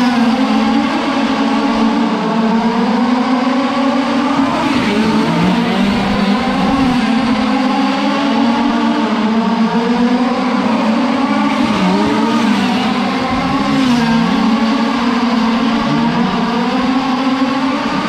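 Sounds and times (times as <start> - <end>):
small two-stroke engines racing: 0.0 - 18.0.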